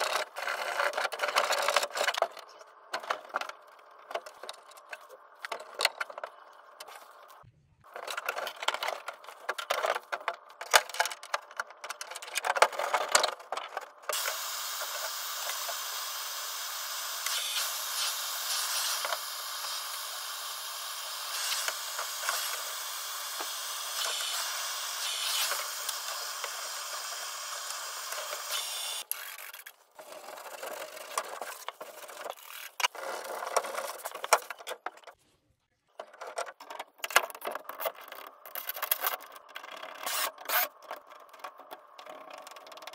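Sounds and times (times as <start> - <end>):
metal parts clicking and rattling: 36.0 - 42.9.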